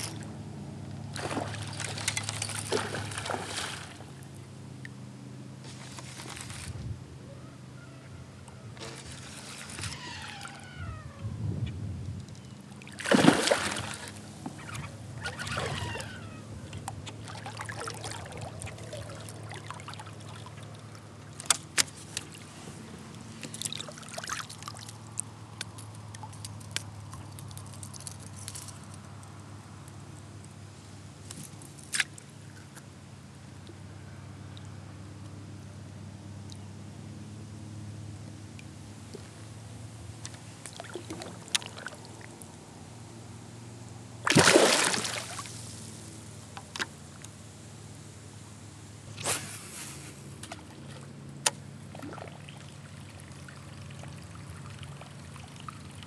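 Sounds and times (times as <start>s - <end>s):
fish thrashing and splashing water: 1.1s - 4.1s, 12.8s - 14.2s, 17.1s - 20.7s, 23.4s - 25.0s, 44.2s - 45.7s.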